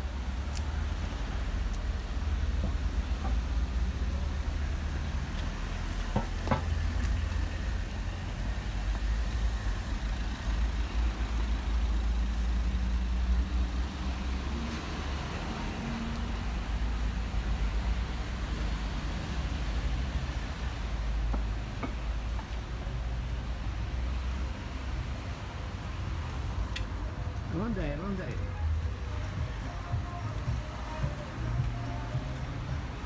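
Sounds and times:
footsteps on pavement: 0:28.6 - 0:33.0.

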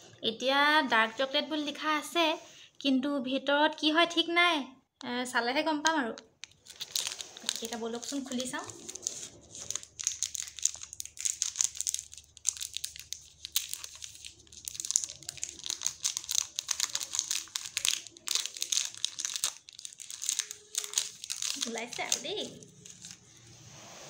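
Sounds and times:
wrapper crinkling and rustling: 0:06.2 - 0:23.4
paper tearing: 0:06.7 - 0:19.6.

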